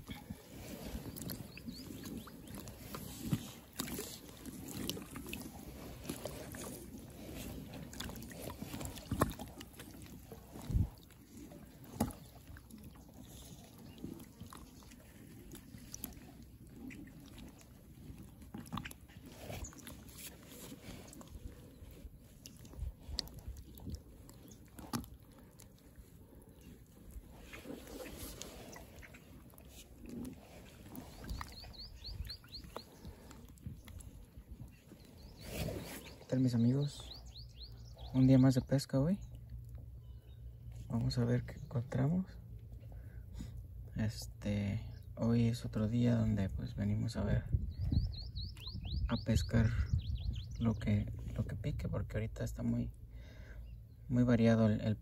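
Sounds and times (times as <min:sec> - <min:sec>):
water sloshing and splashing: 0:00.0 - 0:42.0.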